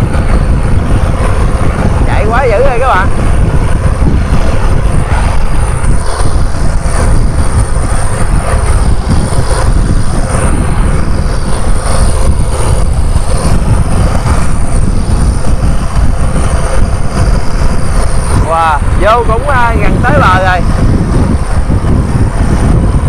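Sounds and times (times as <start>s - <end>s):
boat engine rumbling: 0.0s - 23.0s
wind: 0.0s - 23.0s.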